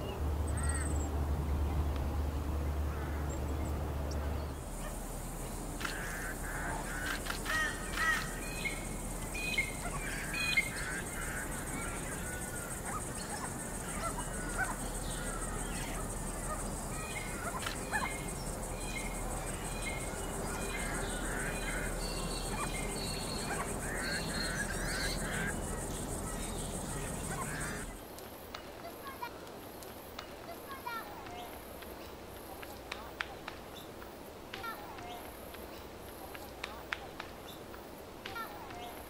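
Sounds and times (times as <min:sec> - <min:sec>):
steady high-pitched hiss: 0:00.0 - 0:39.0
babblers nasal honking calls: 0:05.8 - 0:28.0.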